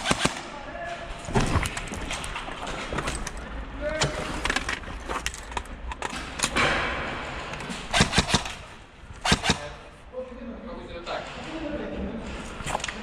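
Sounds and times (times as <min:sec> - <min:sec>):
airsoft guns firing: 0:00.0 - 0:00.5, 0:07.7 - 0:09.8.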